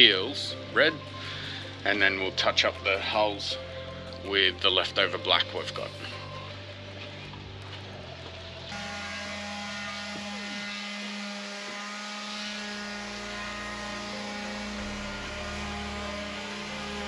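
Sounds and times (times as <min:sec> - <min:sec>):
motor hum: 0:06.3 - 0:17.0.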